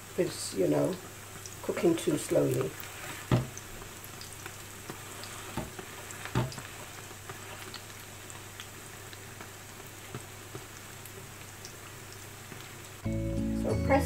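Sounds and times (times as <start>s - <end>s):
fritters sizzling in oil: 0.0s - 13.1s.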